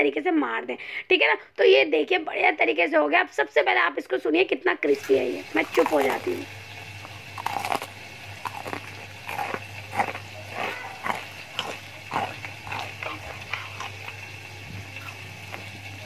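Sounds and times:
fried chicken crunching: 0:05.6 - 0:16.0.

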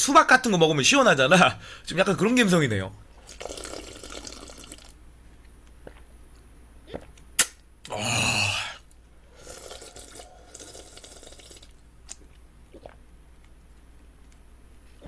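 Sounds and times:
slurping broth from bowl: 0:09.3 - 0:11.7.

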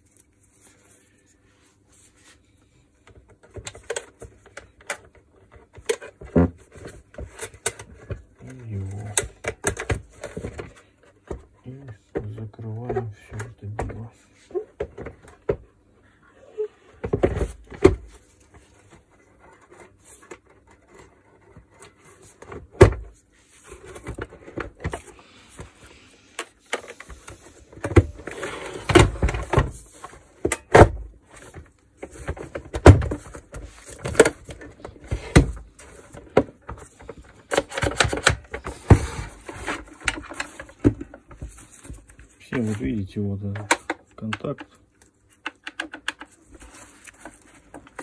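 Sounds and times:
plastic parts knocking and clicking: 0:03.0 - 0:14.1, 0:26.4 - 0:42.7, 0:43.4 - 0:48.0.

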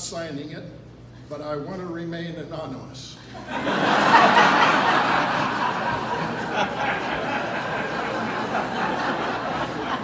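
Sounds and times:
audience laughing: 0:03.4 - 0:10.0.

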